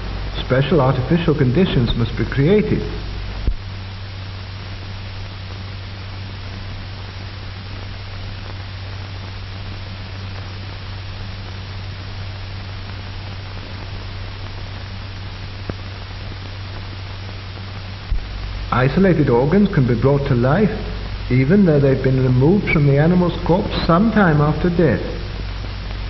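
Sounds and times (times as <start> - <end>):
film soundtrack hiss and hum: 0.0 - 26.0.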